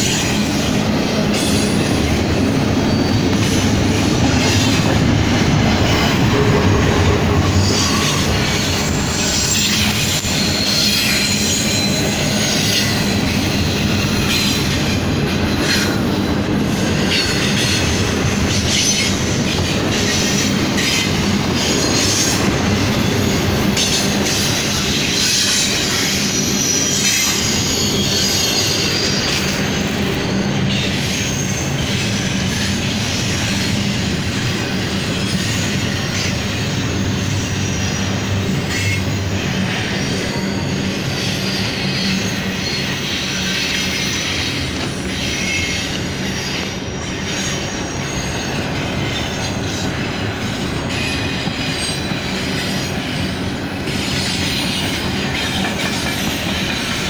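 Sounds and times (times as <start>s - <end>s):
train wheels rumbling on rail: 0.0s - 57.0s
high-pitched wheel squeal: 2.6s - 4.9s, 7.4s - 14.8s, 23.0s - 32.6s, 35.2s - 53.3s.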